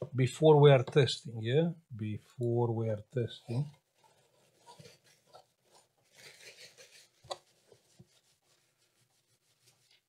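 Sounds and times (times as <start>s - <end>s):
faint rubbing: 3.2s - 10.0s.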